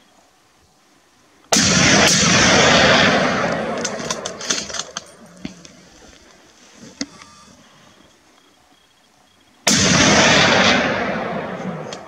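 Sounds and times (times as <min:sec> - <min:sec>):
gunshot with rolling echo: 0:01.5 - 0:05.0, 0:09.7 - 0:12.0
faint scattered clicks: 0:03.5 - 0:08.9.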